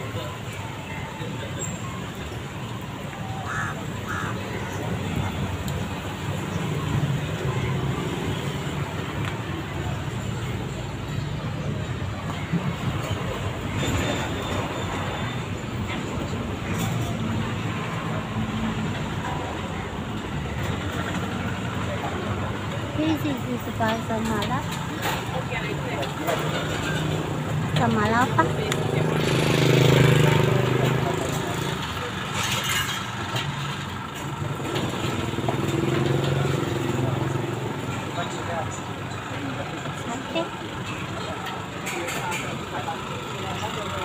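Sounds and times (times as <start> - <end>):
street traffic rumble: 0.0 - 44.0
people talking: 15.9 - 33.4, 35.8 - 44.0.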